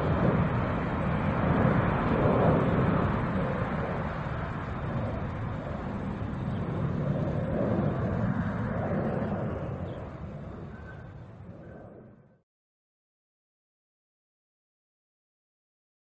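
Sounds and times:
jet engines rumbling: 0.0s - 12.3s.

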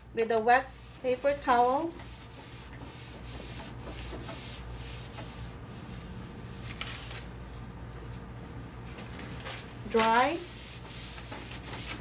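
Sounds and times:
paper towel wiping a table: 0.6s - 7.4s, 9.3s - 12.0s.

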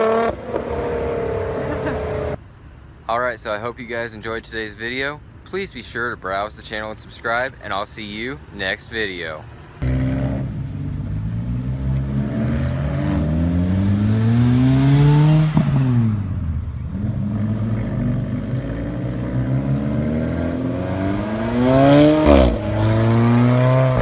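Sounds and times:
sports cars accelerating past: 16.9s - 24.0s.

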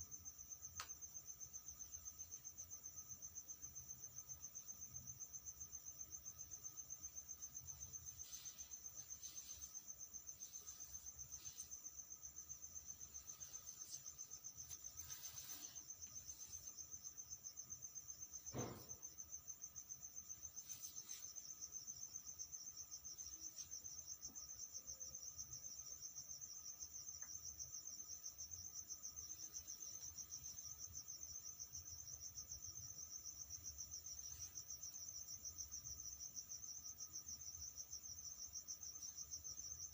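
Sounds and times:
insects trilling: 0.0s - 39.9s
faint rustles: 7.0s - 17.7s, 20.4s - 22.0s.

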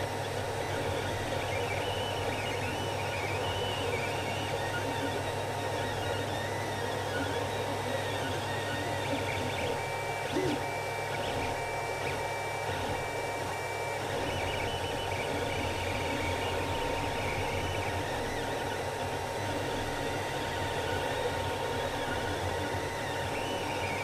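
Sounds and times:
cooling fans whirring: 0.0s - 24.0s
stepper motors beeping tones: 13.9s - 24.0s.

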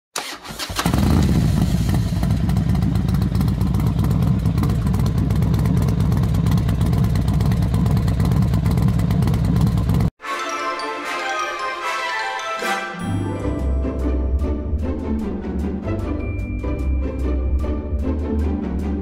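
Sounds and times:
engine rumbling: 0.5s - 10.1s, 13.5s - 19.0s.

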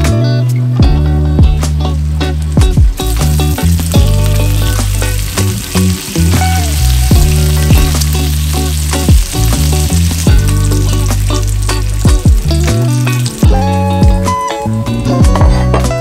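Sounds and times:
background music with bass beat: 0.0s - 16.0s
bacon sizzling in a pan: 2.2s - 14.3s.

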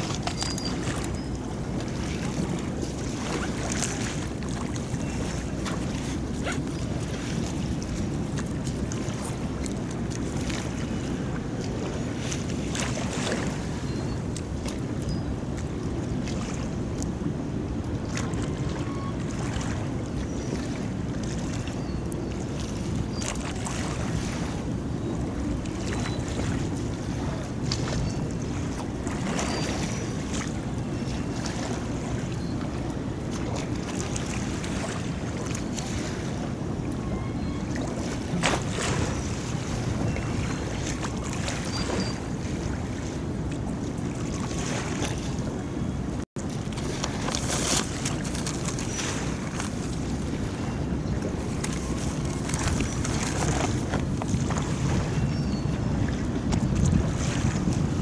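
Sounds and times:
water slapping: 0.0s - 15.0s, 25.4s - 55.2s
rumble of wind and sea: 0.0s - 58.0s
water lapping against shore: 0.0s - 58.0s.

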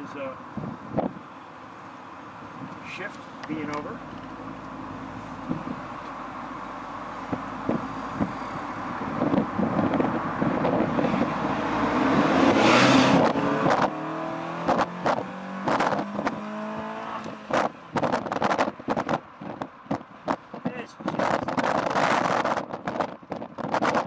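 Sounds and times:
car engine accelerating: 2.8s - 20.4s.

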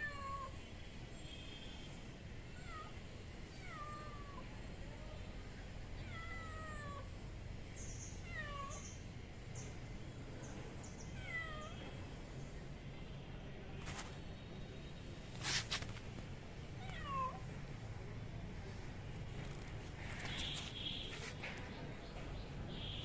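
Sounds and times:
kitten meowing: 16.8s - 17.4s.

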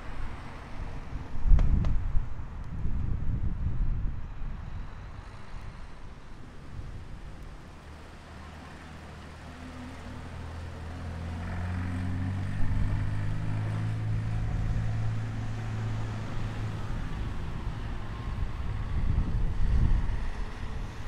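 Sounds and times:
wind hiss: 0.0s - 10.7s, 12.4s - 21.0s
car engine approaching: 4.6s - 21.0s.

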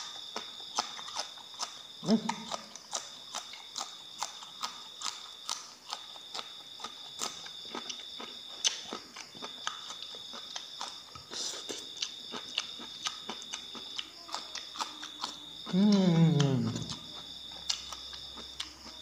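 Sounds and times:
crunchy chewing of raw bean: 0.0s - 19.0s.

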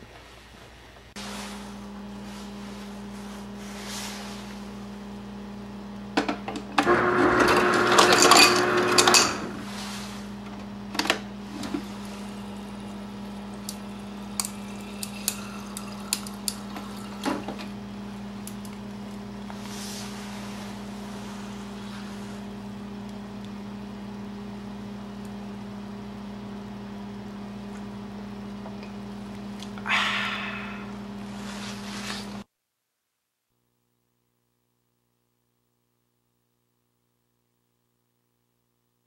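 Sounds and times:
steady low hum: 0.8s - 32.5s
ice dispenser motor whirring: 6.5s - 19.7s.

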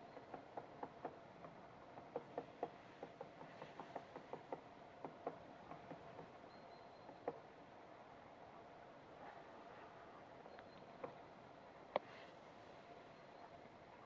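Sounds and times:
woodpecker tapping on wood: 0.1s - 6.4s.

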